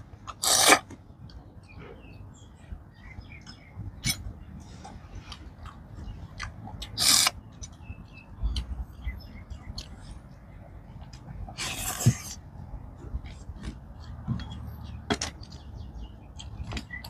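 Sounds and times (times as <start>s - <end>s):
chewing: 3.4s - 8.8s, 13.0s - 17.0s
person slurping snail: 11.6s - 12.4s.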